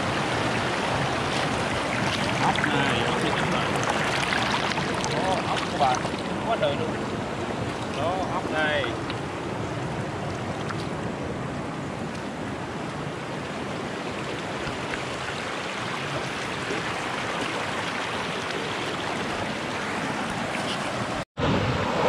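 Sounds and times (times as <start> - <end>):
stream rushing over rocks: 0.0 - 22.0.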